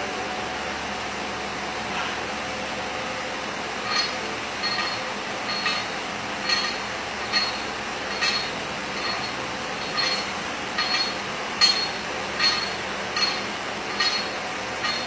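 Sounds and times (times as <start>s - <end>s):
weight plates clinking: 3.8s - 15.0s.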